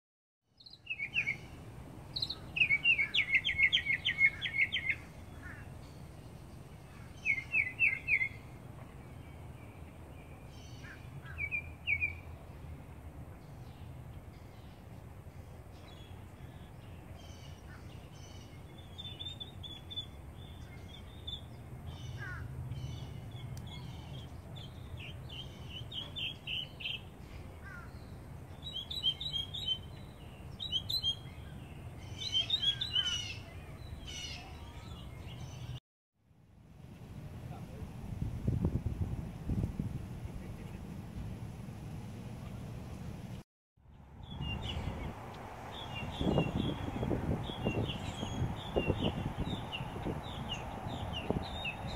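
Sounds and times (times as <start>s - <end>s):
mockingbird singing: 0.6s - 5.7s, 6.8s - 8.5s, 15.9s - 35.8s, 45.7s - 51.9s.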